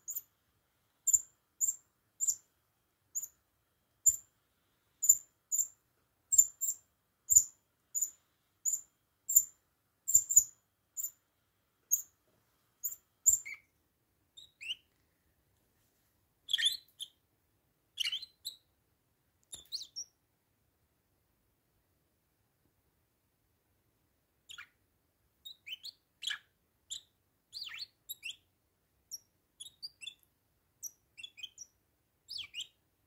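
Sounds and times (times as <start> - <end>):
parakeet chirping and twittering: 0.1 - 0.3, 1.1 - 2.4, 3.1 - 3.4, 4.0 - 4.2, 5.0 - 9.5, 10.1 - 11.2, 11.9 - 12.1, 12.8 - 13.7, 14.4 - 14.9, 16.5 - 17.2, 18.0 - 18.6, 19.5 - 20.1, 24.5 - 24.7, 25.4 - 28.4, 29.1 - 30.2, 30.8 - 32.8.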